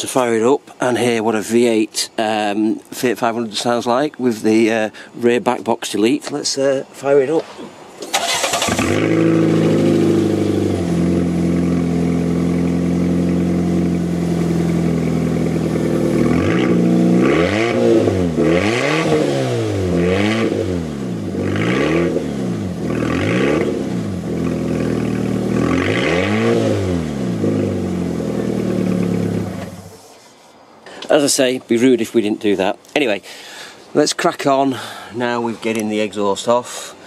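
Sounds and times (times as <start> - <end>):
car engine revving: 8.1 - 30.0.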